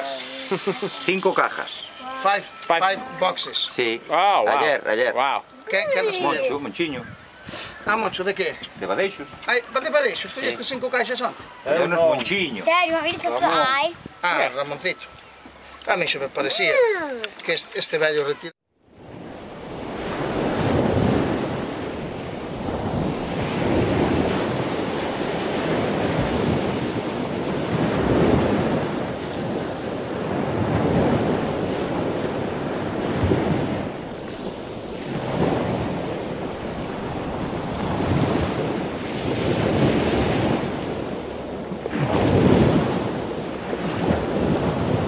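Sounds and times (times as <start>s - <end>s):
ocean surf washing in: 18.9s - 45.0s
wind on microphone: 18.9s - 45.0s.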